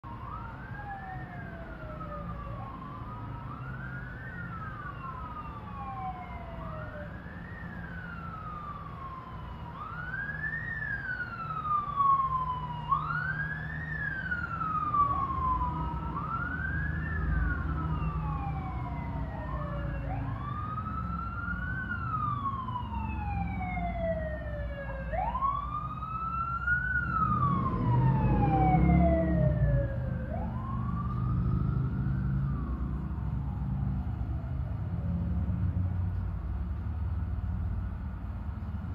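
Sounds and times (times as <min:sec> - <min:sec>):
sirens wailing: 0:00.0 - 0:38.9
traffic rumble: 0:00.0 - 0:38.9.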